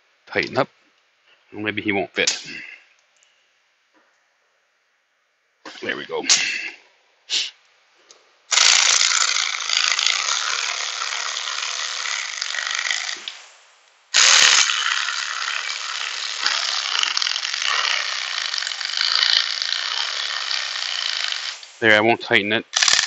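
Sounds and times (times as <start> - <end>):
electric ratchet spinning: 8.5 - 13.4, 14.2 - 21.8, 22.7 - 23.0.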